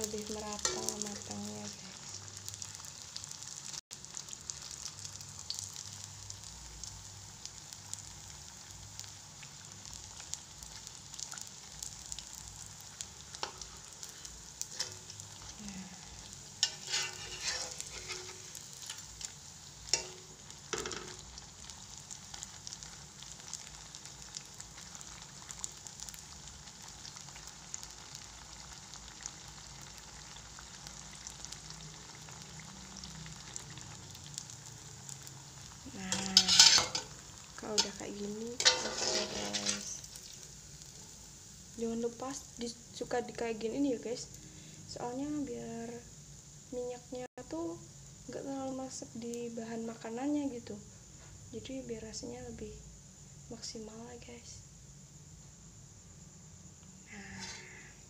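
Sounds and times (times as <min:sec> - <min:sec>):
fritters sizzling in hot oil: 0:00.0 - 0:58.0
metal spatula scraping wok: 0:13.4 - 0:19.3, 0:19.9 - 0:21.2, 0:36.0 - 0:40.1.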